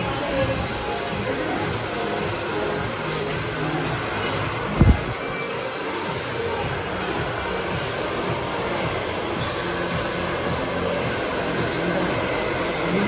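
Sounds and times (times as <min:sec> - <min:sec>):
hair dryer blowing: 0:00.0 - 0:13.0.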